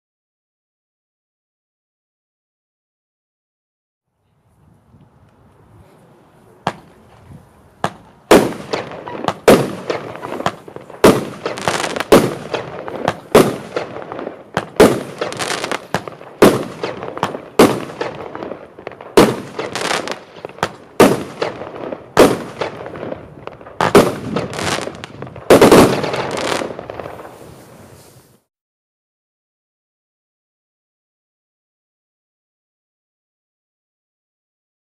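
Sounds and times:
fireworks battery firing bangs: 7.8s - 27.3s.

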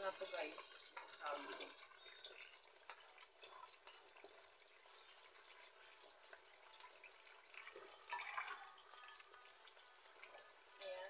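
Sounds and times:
light ticks and drips: 0.0s - 11.0s
sauce simmering in a wok: 0.0s - 11.0s.

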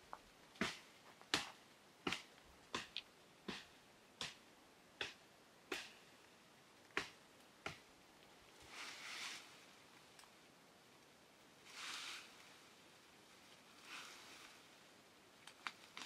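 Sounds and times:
blade chopping branches: 0.6s - 4.4s, 5.0s - 6.0s, 6.9s - 7.9s.

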